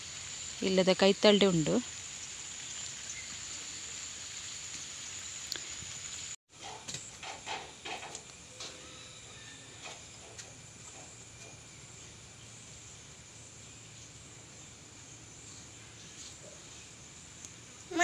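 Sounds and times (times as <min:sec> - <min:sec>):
rain hissing on foliage: 0:00.0 - 0:06.4
background hiss: 0:00.0 - 0:18.0.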